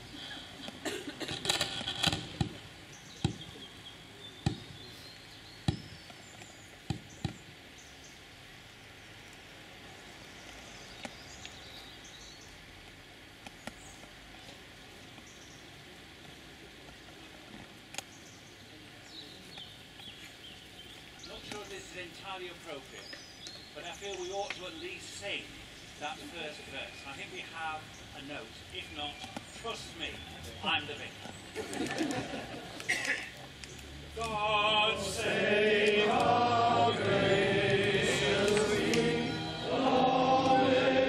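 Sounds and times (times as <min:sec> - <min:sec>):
hushed crowd ambience: 0:13.0 - 0:41.0.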